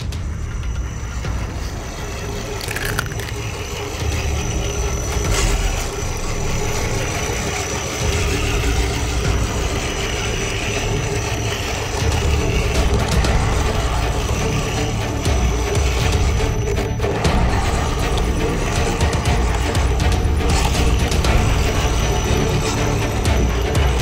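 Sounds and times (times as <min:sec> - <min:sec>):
toy truck motor whining: 0:02.2 - 0:24.0.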